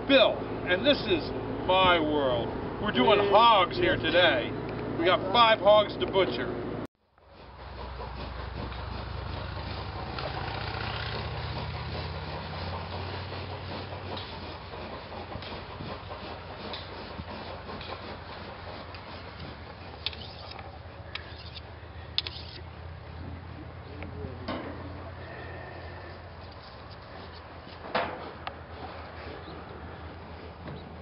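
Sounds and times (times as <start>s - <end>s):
vehicle engine idling: 7.5s - 27.7s.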